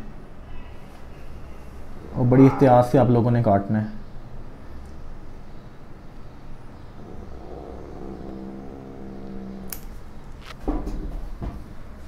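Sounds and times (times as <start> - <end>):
low steady hum: 0.0 - 12.0
low-pitched drone: 6.8 - 10.4
nail clippers snipping: 9.7 - 9.9.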